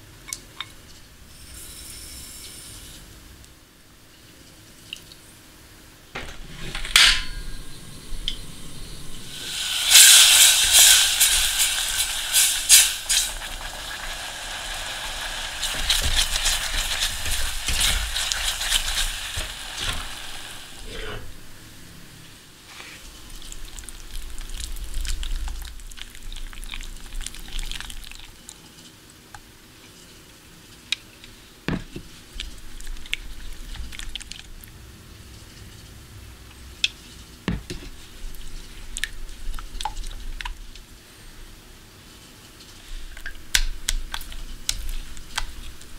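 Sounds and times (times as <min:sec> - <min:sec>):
food sizzling in a pan: 0:07.6 - 0:21.3.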